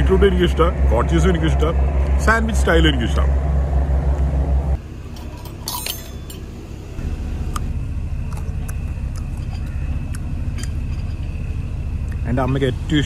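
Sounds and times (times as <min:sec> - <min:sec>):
low steady rumble: 0:00.0 - 0:13.0
glass jars clinking: 0:05.1 - 0:06.6.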